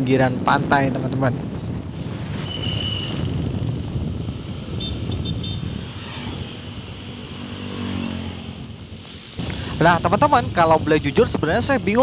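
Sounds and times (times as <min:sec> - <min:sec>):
wind rumbling on microphone: 0:00.0 - 0:12.0
motorcycle engine running: 0:01.8 - 0:12.0.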